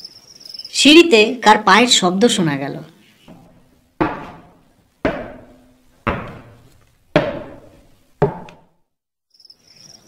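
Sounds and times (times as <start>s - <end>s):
heavy footsteps on stairs: 3.3s - 8.8s.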